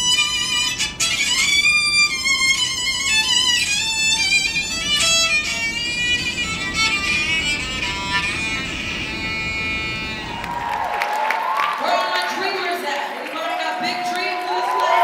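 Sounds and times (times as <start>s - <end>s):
electric violin melody: 0.0s - 10.7s.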